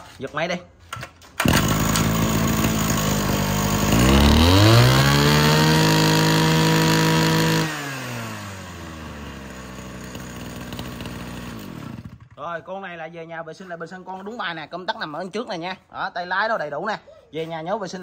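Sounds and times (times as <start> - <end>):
starter cord pull: 1.0 - 2.8
brush cutter engine revving: 1.4 - 12.4.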